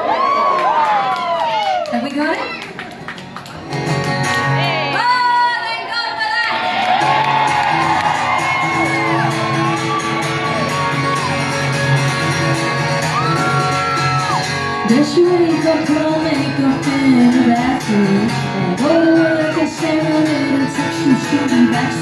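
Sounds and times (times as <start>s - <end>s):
crowd shouting and whooping: 0.0s - 2.9s, 4.6s - 14.8s
live rock band playing: 3.4s - 5.1s, 7.0s - 22.0s
woman singing lead vocal: 14.8s - 22.0s.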